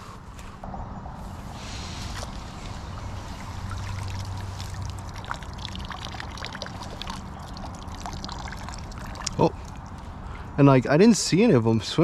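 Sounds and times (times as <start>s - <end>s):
water pouring from net: 2.0s - 10.0s
small water drips: 2.1s - 10.4s.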